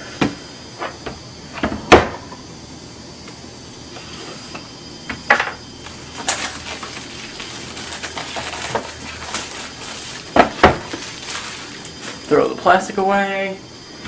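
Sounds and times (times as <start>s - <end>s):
plastic wrap crinkling and tearing: 5.8s - 12.3s.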